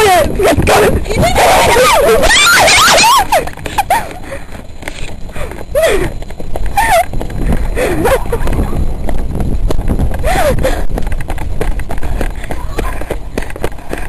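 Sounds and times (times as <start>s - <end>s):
running footfalls: 0.0s - 14.0s
young voices shrieking: 1.1s - 3.5s
low rumble on microphone: 3.3s - 14.0s.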